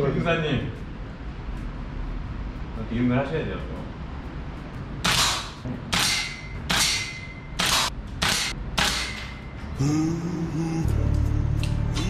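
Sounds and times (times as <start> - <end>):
background music: 9.4 - 12.0.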